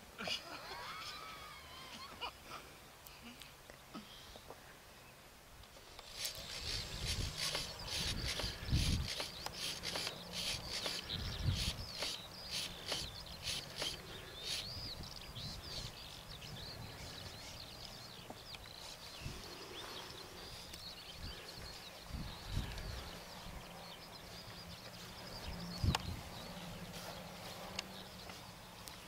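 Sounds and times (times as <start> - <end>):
songbirds chirping: 0.0 - 29.0
close rustling: 5.7 - 15.2
wind rumble on microphone: 6.5 - 9.2, 11.0 - 11.9, 21.2 - 23.6, 25.4 - 26.5.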